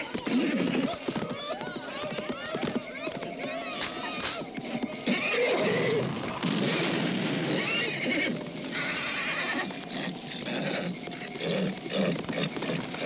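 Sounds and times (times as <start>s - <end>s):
horse whinnying: 5.0s - 13.0s.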